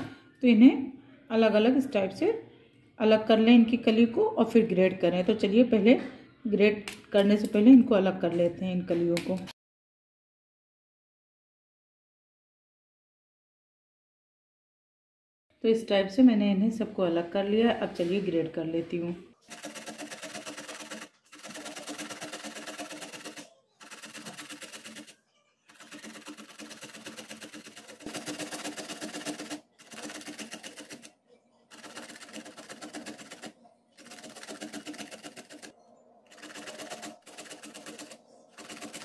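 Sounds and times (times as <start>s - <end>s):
vegetable grated on box grater: 19.5s - 25.1s, 25.7s - 31.1s.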